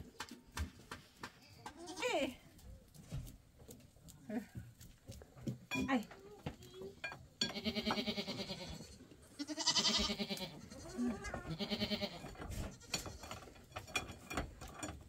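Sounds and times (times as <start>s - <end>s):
goats bleating: 7.5s - 13.2s.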